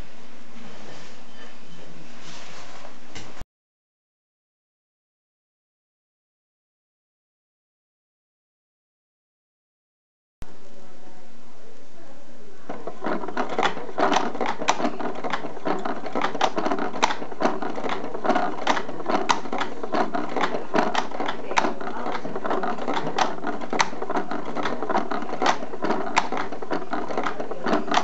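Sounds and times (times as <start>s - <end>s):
model engine clattering clicks: 12.7s - 28.0s.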